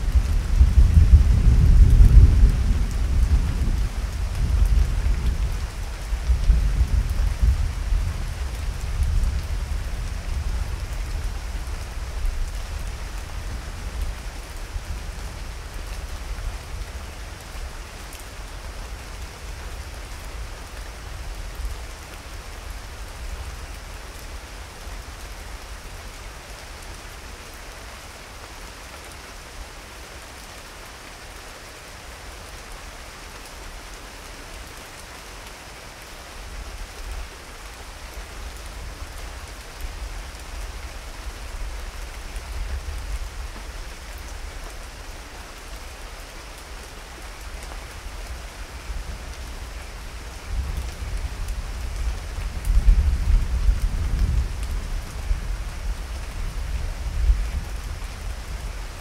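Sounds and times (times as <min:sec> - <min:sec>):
low thunder rumble: 0:00.0 - 0:11.4
steady rain falling: 0:00.0 - 0:59.0.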